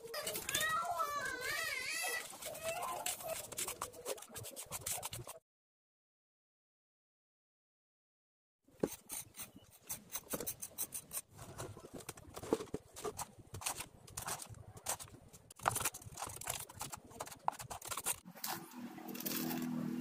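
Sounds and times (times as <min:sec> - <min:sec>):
trowel scraping and tapping: 0:08.8 - 0:19.8.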